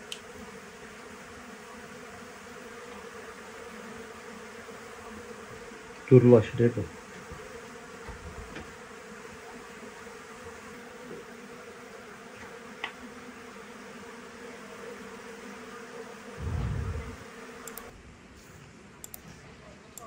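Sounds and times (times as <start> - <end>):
honeybees buzzing: 0.0 - 18.0
low thump: 16.4 - 17.2.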